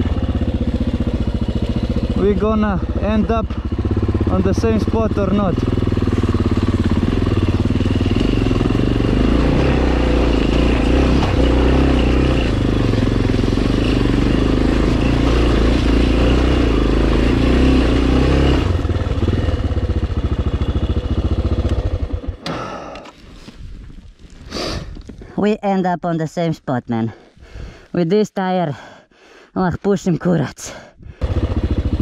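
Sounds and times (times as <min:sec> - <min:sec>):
motorcycle engine running: 0:00.0 - 0:23.0, 0:31.2 - 0:32.0.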